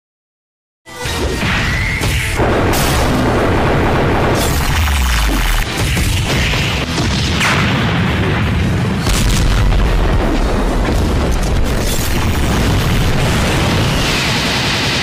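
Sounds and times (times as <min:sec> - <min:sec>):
loud background music: 0:00.9 - 0:11.2
deep booms and impact hits: 0:02.1 - 0:14.2.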